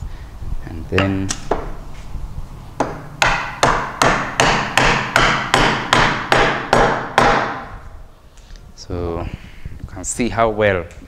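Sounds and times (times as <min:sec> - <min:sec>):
wooden mallet knocking timber: 0:01.0 - 0:01.7, 0:02.8 - 0:07.6.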